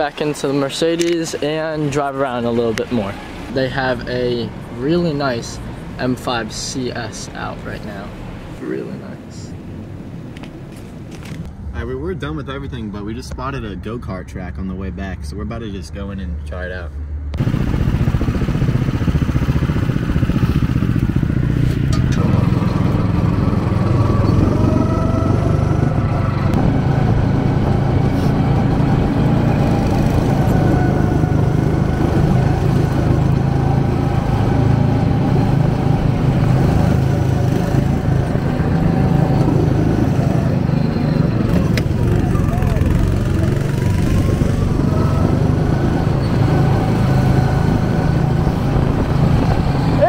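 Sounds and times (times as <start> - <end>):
go-kart engines: 17.3 - 50.0.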